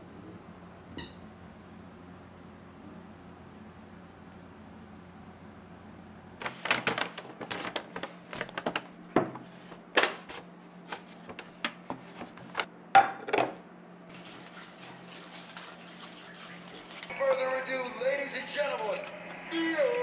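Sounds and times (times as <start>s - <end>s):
foil and paper bag crinkling: 6.4s - 12.6s, 14.1s - 17.9s, 18.6s - 19.7s.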